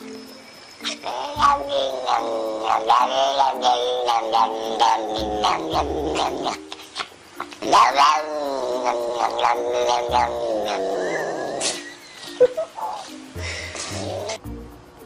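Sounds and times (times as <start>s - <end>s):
cat yowling: 0.8s - 11.8s.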